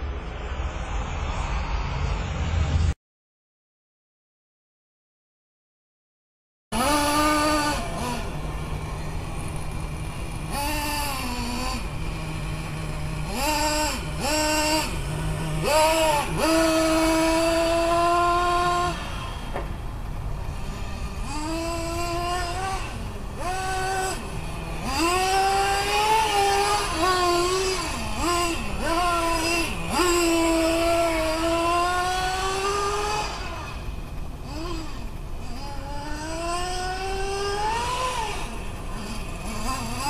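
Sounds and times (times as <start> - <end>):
rc car engine revving: 6.7 - 40.0.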